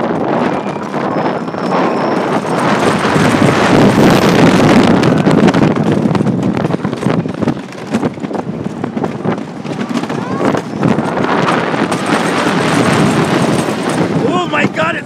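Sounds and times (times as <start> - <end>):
roller coaster clattering on track: 0.0 - 15.0
wind buffeting microphone: 0.0 - 15.0.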